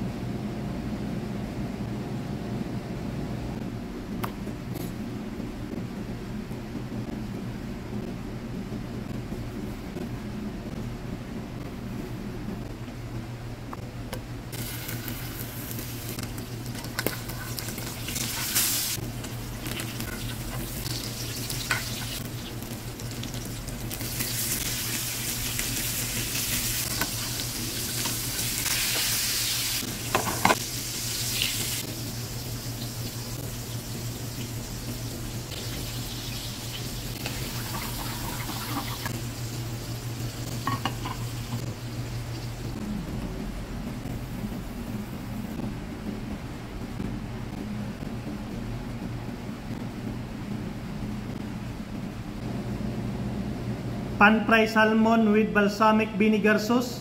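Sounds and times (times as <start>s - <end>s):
steady low hum: 0.0s - 57.0s
food sizzling in frying pan: 14.5s - 42.8s.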